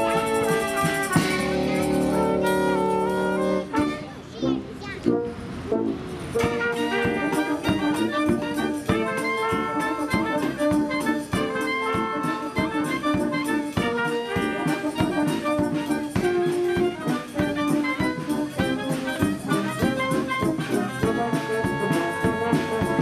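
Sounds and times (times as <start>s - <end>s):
brass dance music: 0.0s - 23.0s.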